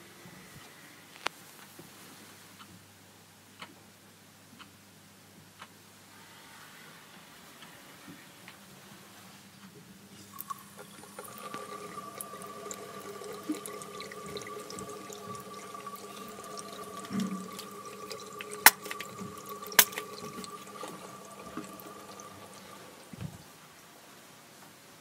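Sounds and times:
water running and dripping: 0:10.2 - 0:23.8
steady tone: 0:10.4 - 0:23.4.

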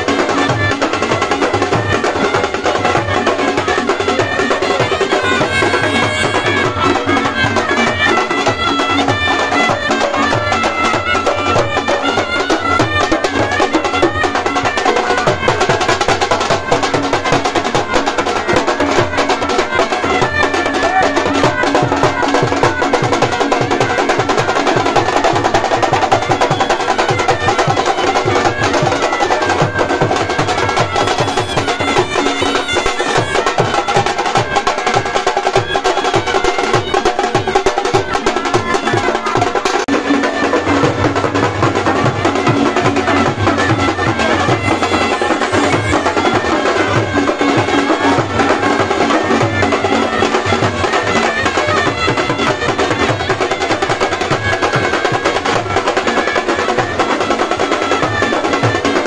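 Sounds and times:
fast drumming: 0:00.0 - 0:59.0
melody over drums: 0:00.0 - 0:59.0.

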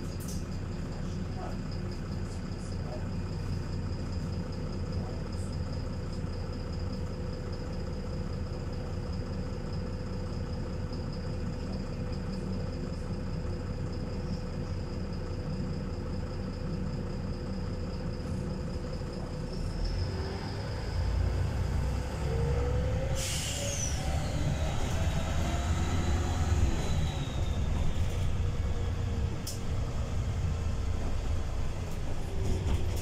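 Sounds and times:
bus diesel engine idling: 0:00.0 - 0:33.0.

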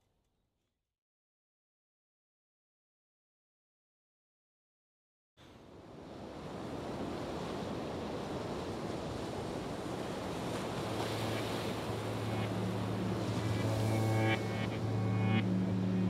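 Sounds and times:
rushing wind-like noise: 0:05.9 - 0:16.0
low held tone: 0:11.0 - 0:16.0.

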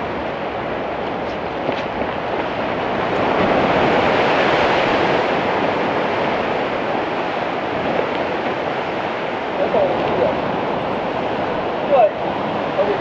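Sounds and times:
ocean surf washing over rock: 0:00.0 - 0:13.0.

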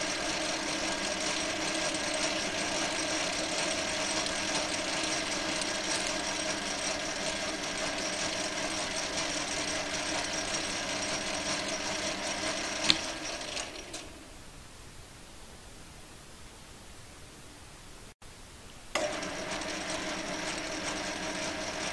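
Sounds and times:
metal lathe running: 0:00.0 - 0:14.2, 0:19.0 - 0:21.9.

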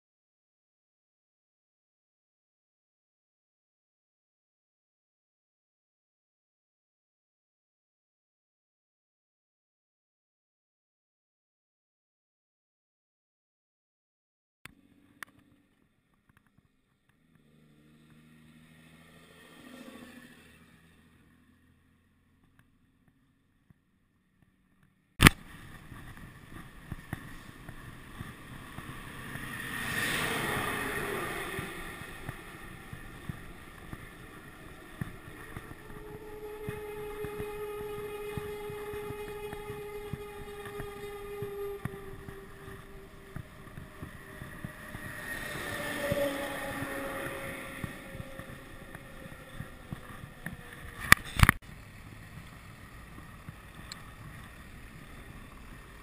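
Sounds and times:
bicycle tyres rolling on road: 0:14.7 - 0:56.0
vehicles passing: 0:14.7 - 0:56.0.

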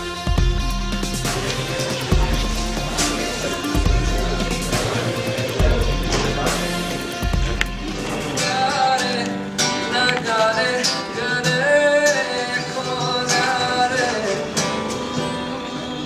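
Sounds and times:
acoustic guitar strumming: 0:00.0 - 0:16.0
man singing: 0:01.1 - 0:16.0.

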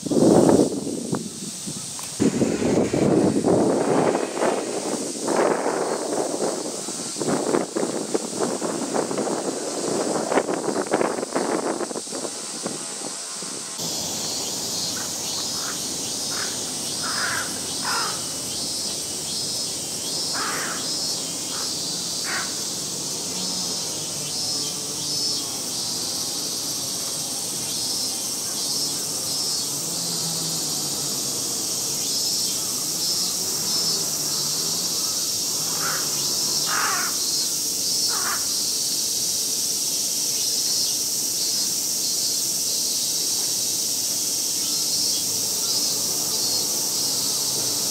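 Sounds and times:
cicadas shrilling: 0:00.0 - 0:47.9
short bird calls: 0:14.8 - 0:18.6.

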